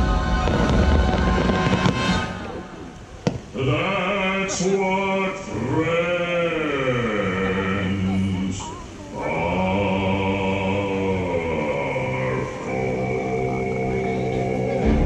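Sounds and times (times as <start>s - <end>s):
music: 0.0s - 2.8s, 12.7s - 15.0s
firework booms: 0.3s - 3.5s
sharp firework crack: 0.4s - 3.6s
person singing long notes: 3.5s - 15.0s.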